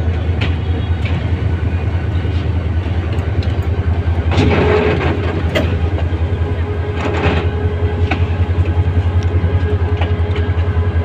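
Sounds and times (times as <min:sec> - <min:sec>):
diesel locomotive engine drone: 0:00.0 - 0:11.0
wheels clicking over rail joints: 0:00.0 - 0:11.0.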